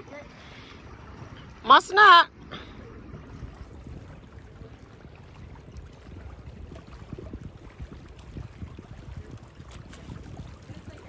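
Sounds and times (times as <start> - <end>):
small waves lapping on rocks: 0.0 - 11.0
wind buffeting microphone: 0.0 - 11.0.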